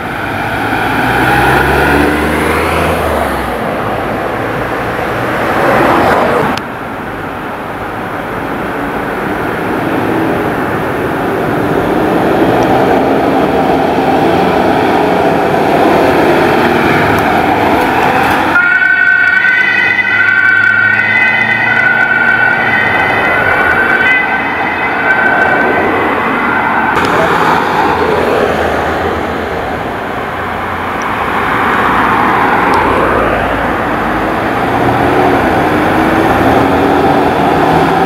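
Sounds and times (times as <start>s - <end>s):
vehicle engine and road noise: 0.0s - 38.0s
two-tone siren: 17.5s - 27.0s.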